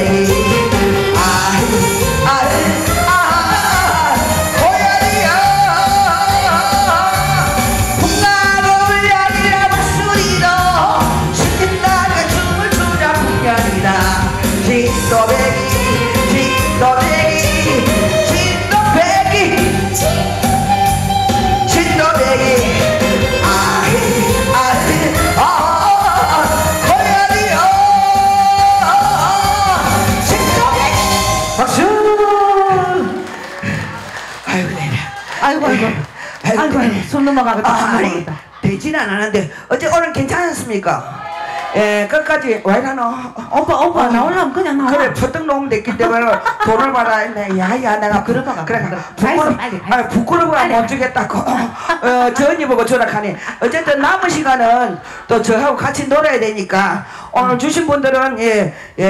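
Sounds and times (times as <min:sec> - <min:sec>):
woman singing into a microphone: 0:00.0 - 0:32.2
backing track with steady beat: 0:00.0 - 0:37.0.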